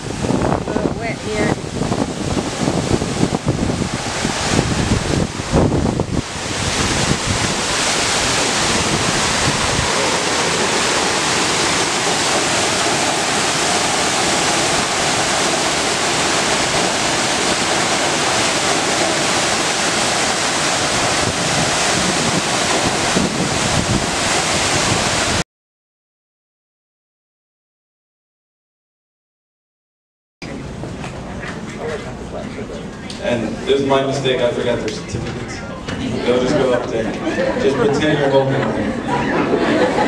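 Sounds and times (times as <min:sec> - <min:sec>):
waterfall rushing: 0:00.0 - 0:25.4.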